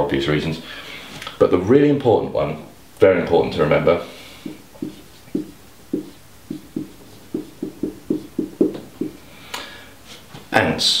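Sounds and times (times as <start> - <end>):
marker squeaking on whiteboard: 4.4 - 9.2.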